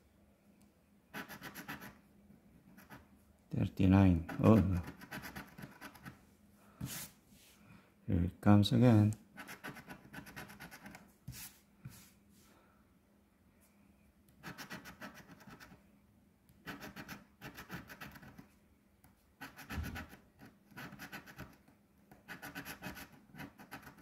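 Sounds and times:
coin scratching lottery ticket: 1.2s - 2.0s, 4.2s - 6.1s, 9.4s - 11.0s, 14.4s - 15.8s, 16.6s - 18.4s, 19.4s - 21.5s, 22.3s - 24.0s.

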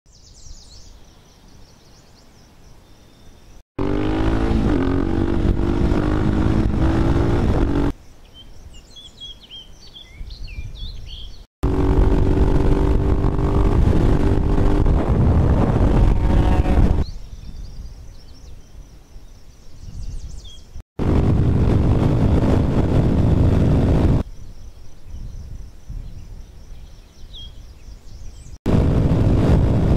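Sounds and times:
birds chirping: 0.1s - 14.3s
motorcycle engine running loud: 3.8s - 7.9s, 11.6s - 17.0s, 21.0s - 24.2s, 28.7s - 29.9s.

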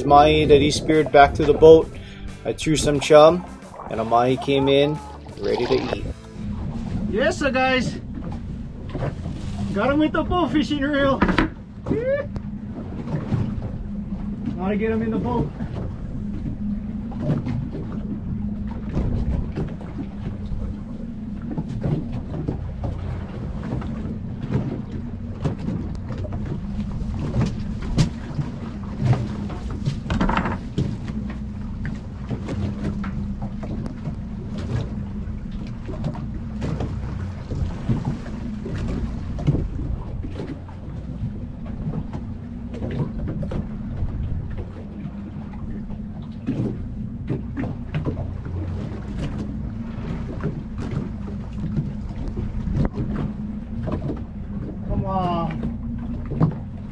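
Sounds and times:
boat motor idling: 0.0s - 56.9s
wind and sea noise: 0.0s - 56.9s
short knocks: 11.2s - 11.6s.

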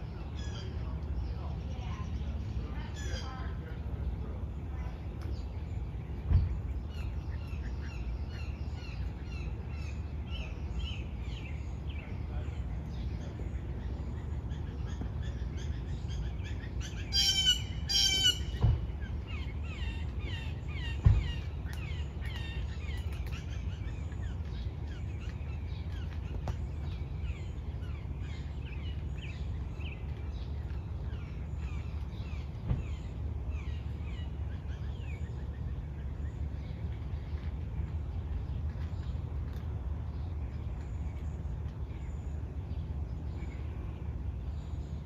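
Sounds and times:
low outdoor rumble: 0.0s - 45.0s
small birds chirping: 0.0s - 45.0s
loud harsh bird calls: 13.4s - 25.3s.

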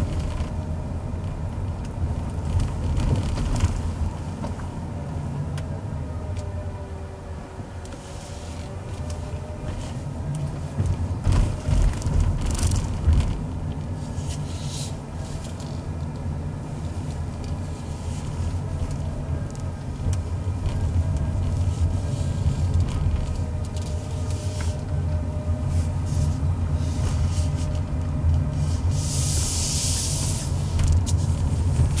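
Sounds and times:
car engine and tyre rumble: 0.0s - 32.0s
short hiss: 29.0s - 30.8s.

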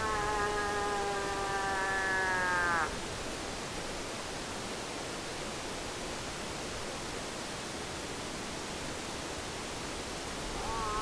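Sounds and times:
cow moose call: 0.0s - 2.9s.

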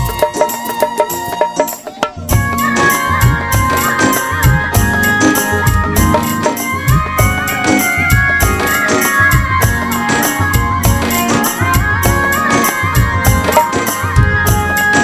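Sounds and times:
high sliding melody line: 0.0s - 15.0s
steady drum beat: 0.0s - 15.0s.

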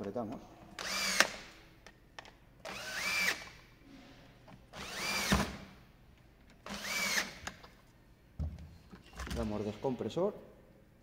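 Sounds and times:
cordless drill running: 0.8s - 1.5s, 2.6s - 3.6s, 4.7s - 5.6s, 6.6s - 7.4s.

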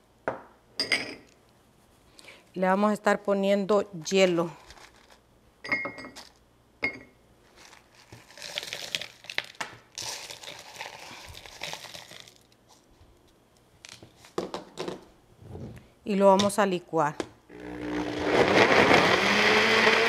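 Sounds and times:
crushed ice pouring into blender: 7.6s - 12.5s.

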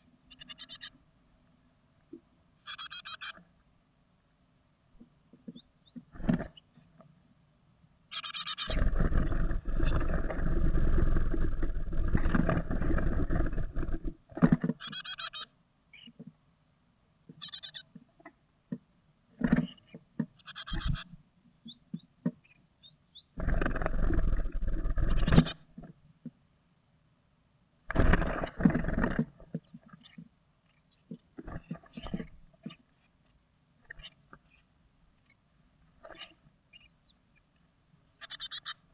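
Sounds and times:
wings flapping and rustling: 5.5s - 6.6s, 8.6s - 15.3s, 23.4s - 26.0s, 27.9s - 30.2s
nestlings chirping: 8.1s - 14.1s, 14.8s - 16.2s, 17.3s - 18.0s, 19.6s - 25.6s, 36.1s - 37.6s, 38.2s - 38.9s.

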